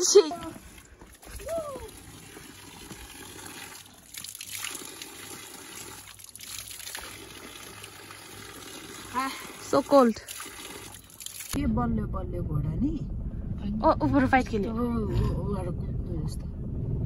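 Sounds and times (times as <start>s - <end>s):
water running from a spout: 0.2s - 11.6s
water splashing into a pit: 0.5s - 11.6s.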